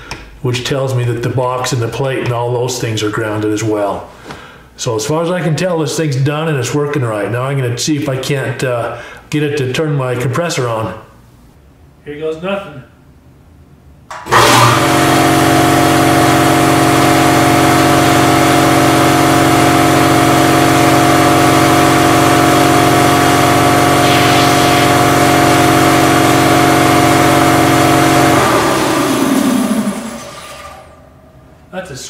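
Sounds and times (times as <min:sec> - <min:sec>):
air compressor running: 0:14.1 - 0:31.6
compressor winding down: 0:14.1 - 0:31.7.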